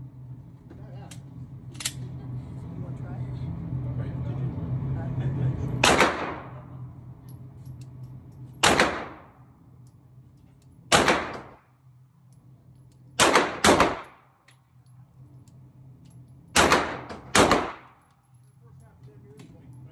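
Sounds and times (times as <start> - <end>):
pistol shots echoing indoors: 8.6 - 9.3, 10.9 - 11.6, 13.2 - 14.3, 16.5 - 18.1.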